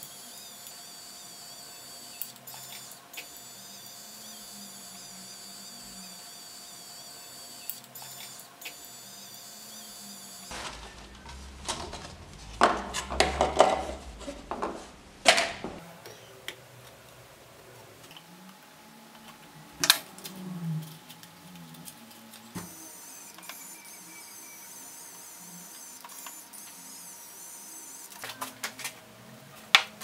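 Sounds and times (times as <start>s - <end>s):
pen motor whirring: 0.0s - 10.5s, 20.8s - 28.2s
loud knocks and clatters: 10.5s - 15.8s.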